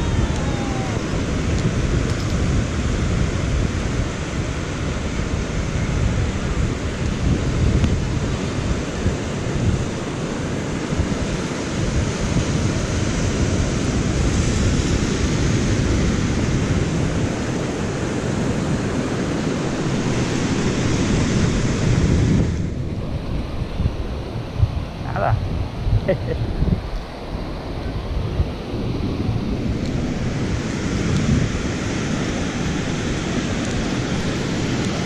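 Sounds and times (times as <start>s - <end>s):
surf rushing: 0.0s - 35.0s
wind buffeting microphone: 0.0s - 35.0s.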